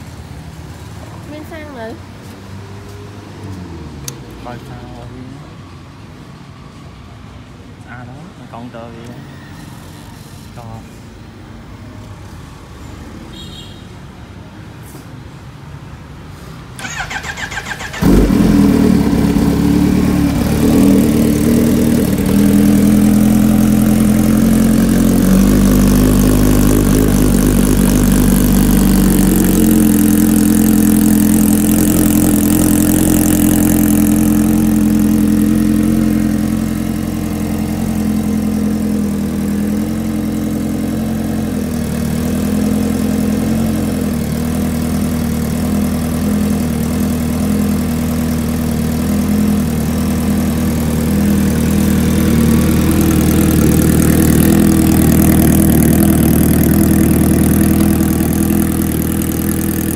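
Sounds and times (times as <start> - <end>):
motorcycle starter cranking: 16.8 - 18.4
motorcycle engine idling: 16.8 - 59.9.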